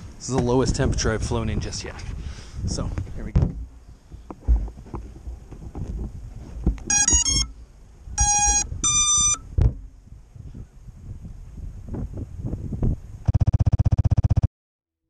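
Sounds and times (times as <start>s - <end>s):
handling bumps and rustling: 3.0s - 7.4s
electronic startup beeps: 6.9s - 7.5s, 8.2s - 9.4s.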